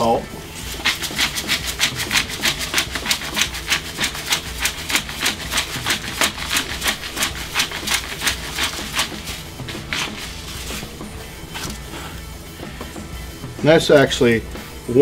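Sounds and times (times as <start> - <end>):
salt grinder crunching: 0.7 - 10.6.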